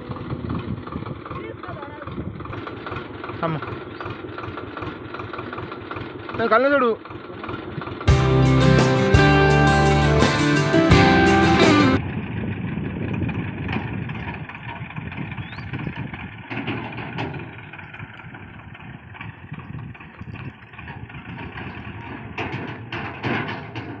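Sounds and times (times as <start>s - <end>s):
tractor diesel engine running: 0.0s - 24.0s
background music: 8.1s - 12.0s.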